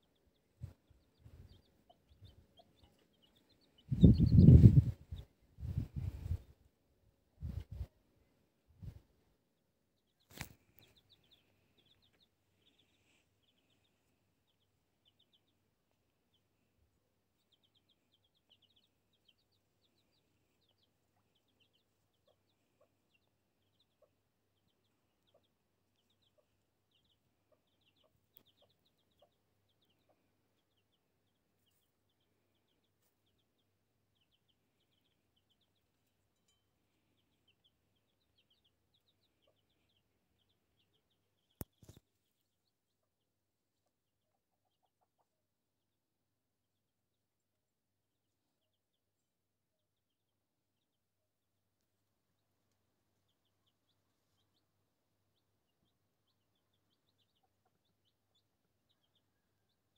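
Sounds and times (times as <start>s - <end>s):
hen clucking: 0.0s - 5.3s, 17.4s - 30.3s
chicks peeping: 0.0s - 6.7s, 10.0s - 45.4s, 48.3s - 48.8s, 51.8s - 59.9s.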